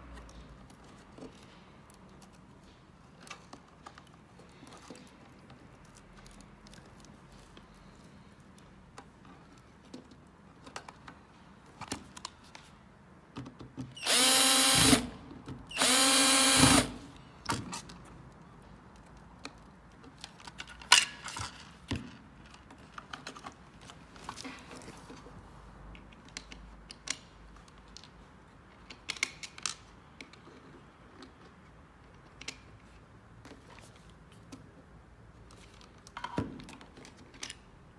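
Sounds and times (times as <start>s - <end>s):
cordless drill whining: 14.0s - 15.1s, 15.7s - 17.0s.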